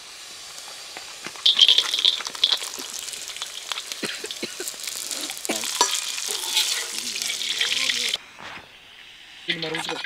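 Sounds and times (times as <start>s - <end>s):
nuts sizzling in hot fat: 0.0s - 8.2s, 8.9s - 10.0s
ladle clinking and scraping pan: 5.5s - 7.9s.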